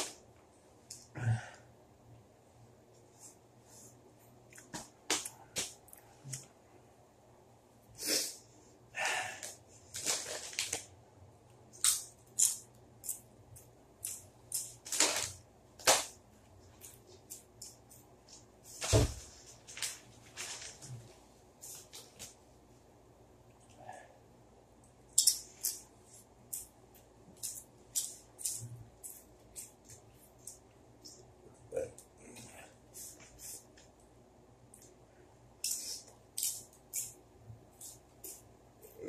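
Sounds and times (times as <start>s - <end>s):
person sniffing and breathing: 8.0s - 9.7s, 32.4s - 33.7s
crunching chips: 14.0s - 16.1s.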